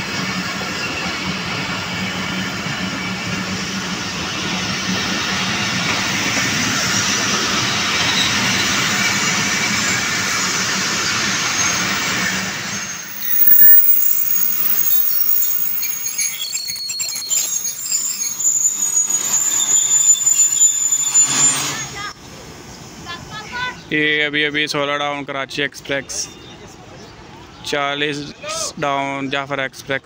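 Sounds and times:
train coaches rumbling on rails: 0.0 - 16.9
faint high squeals: 11.4 - 22.1.

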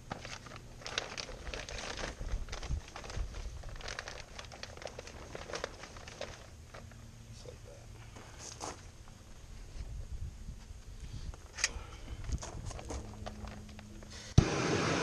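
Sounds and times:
plastic film crinkling: 0.0 - 7.0.

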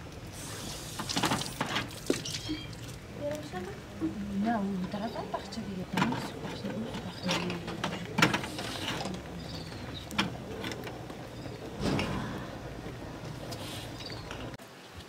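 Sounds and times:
metal utensils scraping pans: 4.8 - 14.6.

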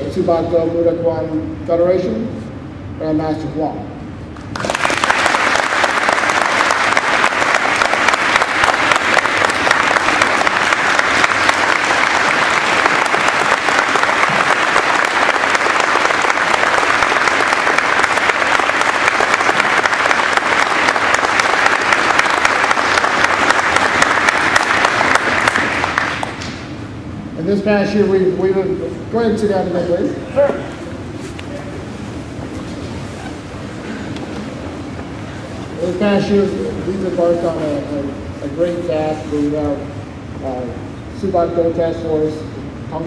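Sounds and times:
audience applauding: 4.4 - 26.6.

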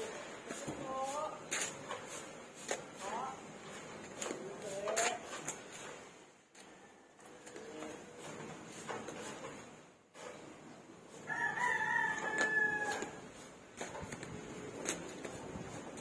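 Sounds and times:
rooster crowing: 11.2 - 13.2.

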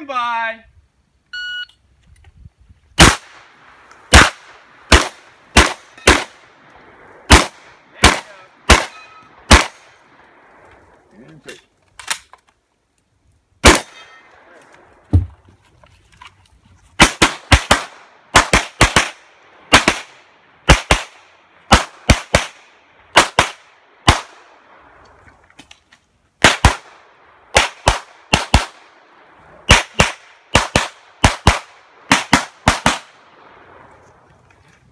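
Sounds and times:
pistol shots: 3.0 - 6.4, 7.3 - 9.9, 13.6 - 14.0, 17.0 - 24.5, 26.4 - 28.9, 29.7 - 33.5.

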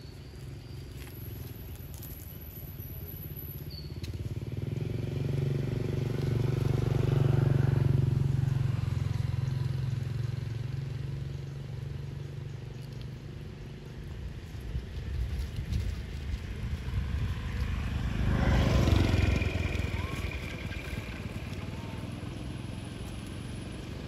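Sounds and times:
vehicle engine passing by: 3.0 - 24.0.

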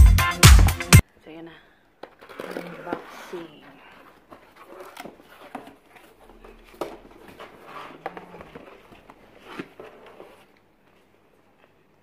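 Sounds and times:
cardboard flaps rustling and scraping: 2.0 - 11.1.

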